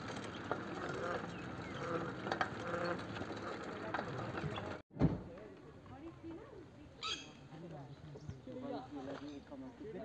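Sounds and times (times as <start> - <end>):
bicycle clicks and rattles: 0.0 - 4.8.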